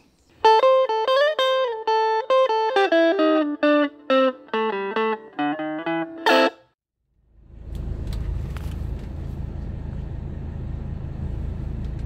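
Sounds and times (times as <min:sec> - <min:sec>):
electric guitar melody: 0:00.4 - 0:06.8.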